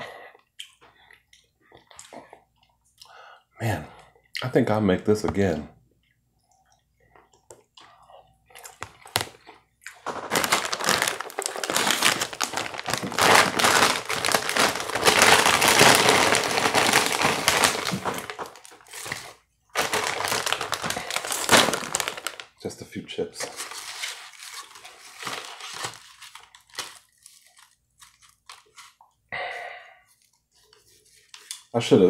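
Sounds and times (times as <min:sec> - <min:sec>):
plastic chip bag crinkling: 0:08.6 - 0:22.7, 0:23.4 - 0:29.0.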